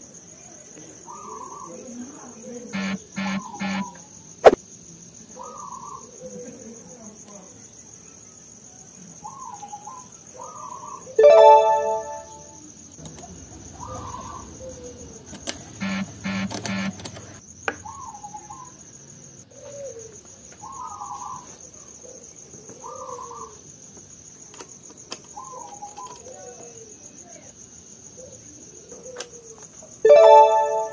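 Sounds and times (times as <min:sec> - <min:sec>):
high insect-like trill: 0:02.7 - 0:04.6, 0:11.2 - 0:19.4, 0:29.8 - 0:30.9
harsh bird calls: 0:02.8 - 0:04.0, 0:13.3 - 0:18.8.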